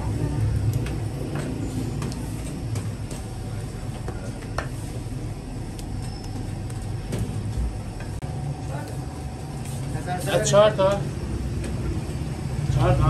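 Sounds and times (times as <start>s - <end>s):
low hum of bakery machinery: 0.0s - 13.0s.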